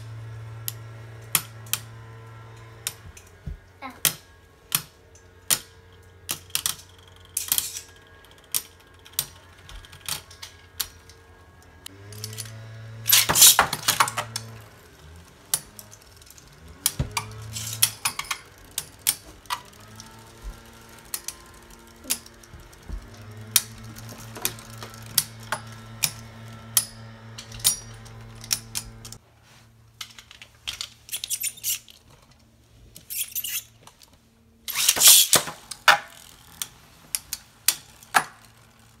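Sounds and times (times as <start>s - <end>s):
low spinning hum: 0.0s - 30.0s
spinning tops clashing: 13.1s - 14.3s, 34.7s - 36.2s.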